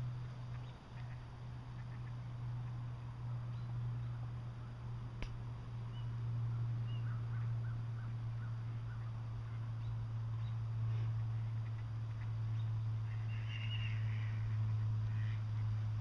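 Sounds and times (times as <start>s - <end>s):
steady low hum: 0.0s - 16.0s
faint bird chirps: 5.9s - 15.4s.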